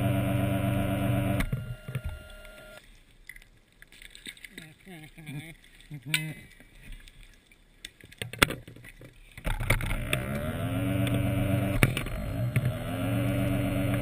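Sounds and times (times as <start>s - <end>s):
electric motor humming: 0.0s - 2.8s, 9.9s - 14.0s.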